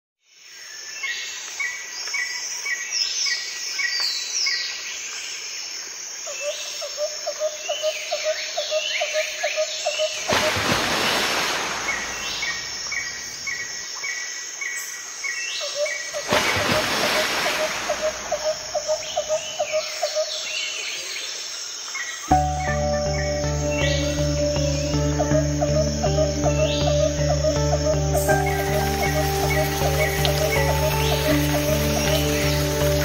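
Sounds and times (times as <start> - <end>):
insects chirping: 0.3 - 33.0
bird calls: 6.3 - 21.3, 22.0 - 33.0.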